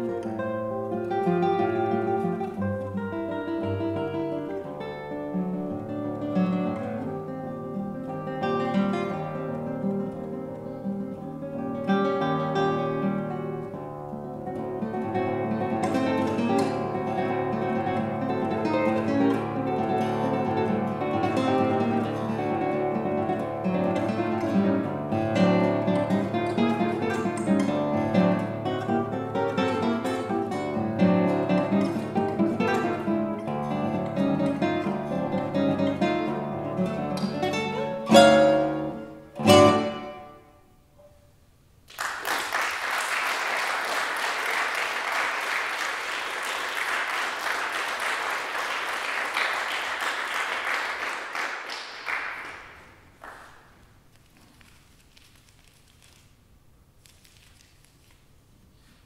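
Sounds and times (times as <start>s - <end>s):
solo classical guitar: 0.0s - 42.2s
audience applause: 41.9s - 53.7s.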